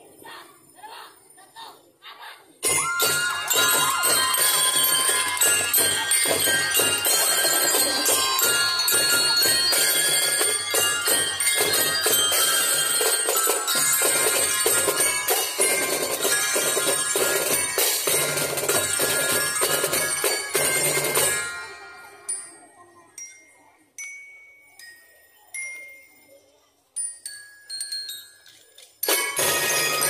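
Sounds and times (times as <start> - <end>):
drums beating: 2.6 - 21.8, 29.1 - 30.0
bell lyres playing melody: 2.6 - 30.0.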